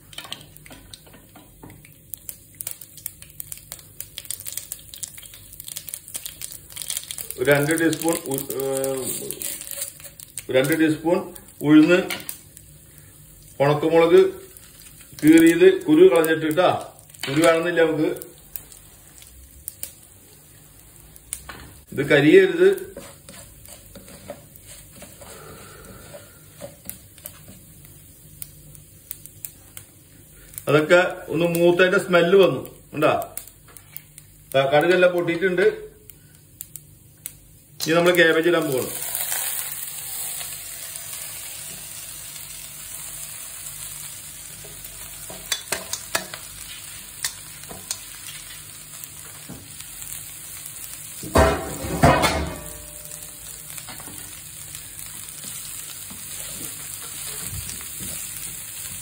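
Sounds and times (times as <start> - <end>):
seeds sizzling in hot oil: 0.0 - 59.0
seeds popping crackles: 1.8 - 12.7, 13.4 - 20.4.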